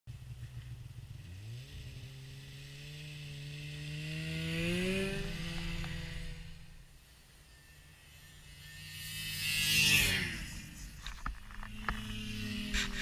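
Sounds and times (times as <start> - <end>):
snowmobile engine passing: 0.1 - 13.0.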